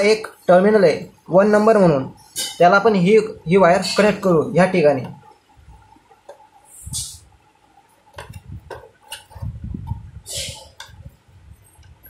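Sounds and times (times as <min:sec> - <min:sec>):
short hissing rustles: 0:06.7 - 0:07.3.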